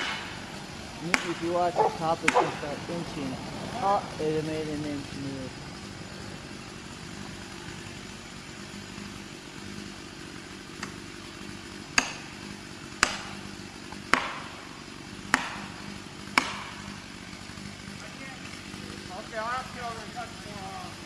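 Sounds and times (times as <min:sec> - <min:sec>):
hammer blows on felling wedge: 0:00.0 - 0:02.9, 0:13.0 - 0:14.7
chainsaw idling: 0:00.0 - 0:21.0.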